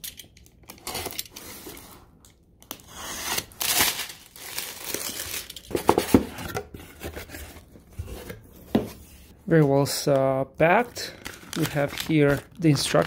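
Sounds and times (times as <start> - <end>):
shrink wrap crinkling and tearing: 2.9 - 5.7, 10.6 - 13.0.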